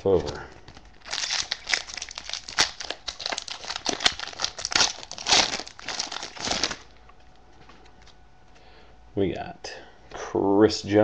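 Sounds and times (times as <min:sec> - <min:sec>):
foil wrapper tearing and crumpling: 0:00.0 - 0:07.0.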